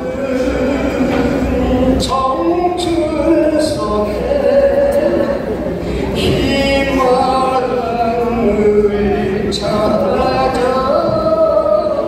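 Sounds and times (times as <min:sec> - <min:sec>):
man singing into microphone: 0:00.0 - 0:12.0.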